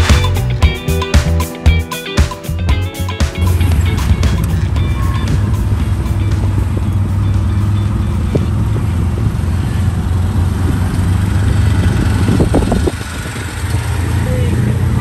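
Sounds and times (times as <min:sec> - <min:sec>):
road noise: 0:00.0 - 0:15.0
auto-rickshaw engine running: 0:03.4 - 0:15.0.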